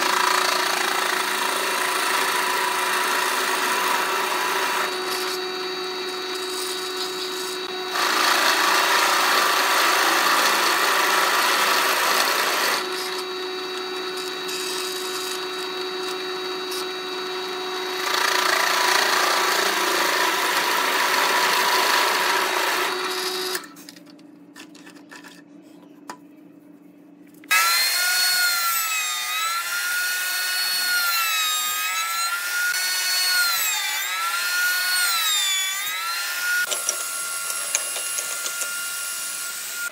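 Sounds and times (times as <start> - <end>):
drill bit cutting wood: 0.0 - 23.7, 27.5 - 39.9
drill press motor hum: 0.0 - 23.8
router high whine: 0.0 - 23.8, 27.5 - 39.9.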